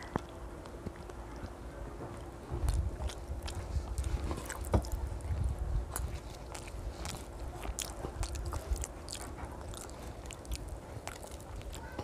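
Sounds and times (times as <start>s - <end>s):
child chewing food: 0.0s - 12.0s
wet mouth clicks: 2.6s - 5.0s, 5.9s - 12.0s.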